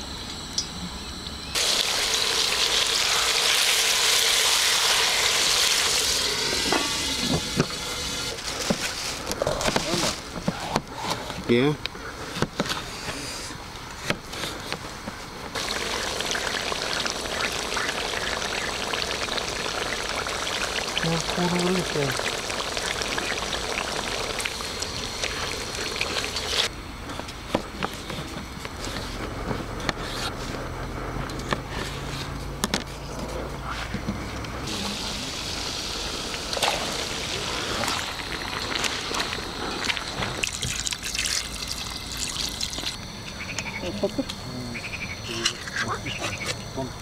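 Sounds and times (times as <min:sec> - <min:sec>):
low steady hum: 0:00.0 - 0:47.0
meat sizzling in a pot: 0:01.6 - 0:09.2, 0:15.6 - 0:26.7, 0:34.6 - 0:43.0
bright hiss: 0:34.6 - 0:43.0.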